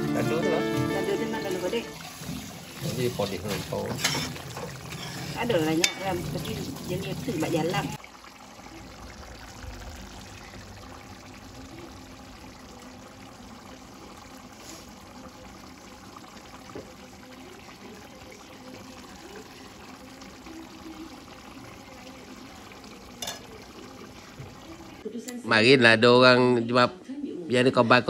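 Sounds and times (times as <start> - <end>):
quiet simmering: 0.0 - 25.4
liquid pouring off ladle: 0.5 - 25.0
metal ladle stirring in wok: 2.0 - 6.9.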